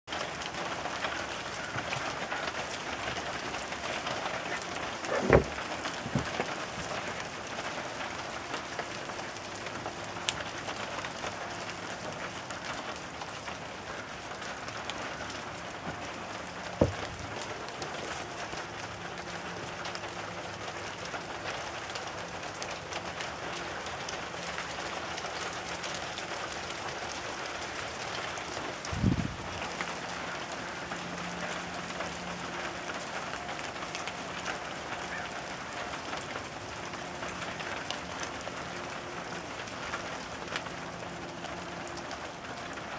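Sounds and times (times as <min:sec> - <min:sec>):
hail pattering: 0:00.1 - 0:42.9
sharp knocks: 0:05.1 - 0:06.5, 0:16.8 - 0:17.0.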